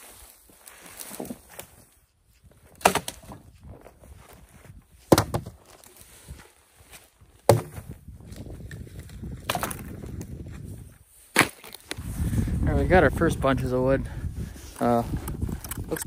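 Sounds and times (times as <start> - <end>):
dead wood cracking: 7.4 - 10.6, 11.3 - 12.0.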